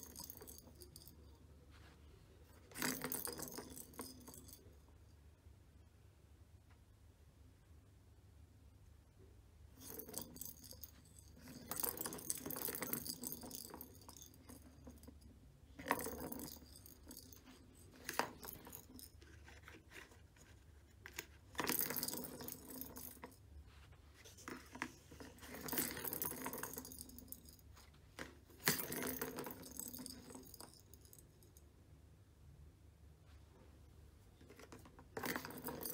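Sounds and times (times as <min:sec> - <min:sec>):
balls rattling in plastic track: 0:02.6 - 0:04.6, 0:09.8 - 0:23.4, 0:24.2 - 0:31.4, 0:34.4 - 0:35.9.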